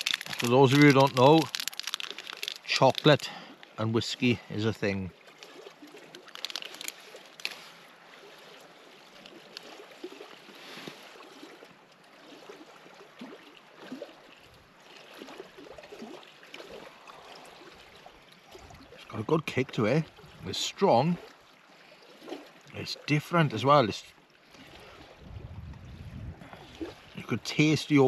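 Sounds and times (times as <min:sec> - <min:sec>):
small clicks and crackles: 0:00.0 - 0:03.7, 0:05.3 - 0:07.7
water lapping at shore: 0:00.0 - 0:28.0.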